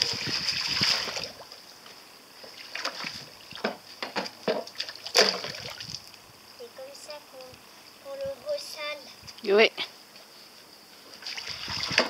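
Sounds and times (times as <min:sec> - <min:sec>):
short splashes: 0:00.0 - 0:01.5, 0:02.5 - 0:03.8, 0:04.5 - 0:06.1, 0:11.2 - 0:12.0
boat bumping stone edge: 0:03.6 - 0:05.5.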